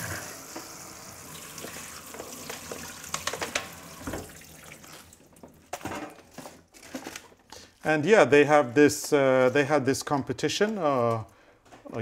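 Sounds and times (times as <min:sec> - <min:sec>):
tap running into steel sink: 0:01.4 - 0:04.4.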